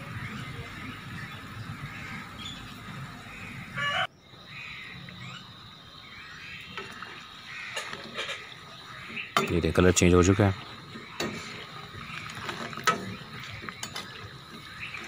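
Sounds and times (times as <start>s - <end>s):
dough deep-frying in oil: 5.8s - 15.0s.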